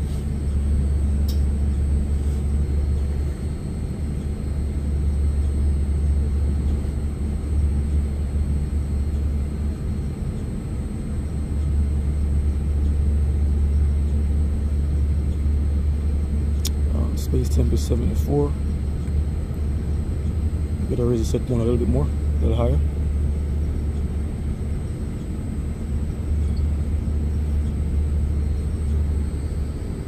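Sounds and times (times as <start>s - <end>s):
faint hum: 0.0s - 30.0s.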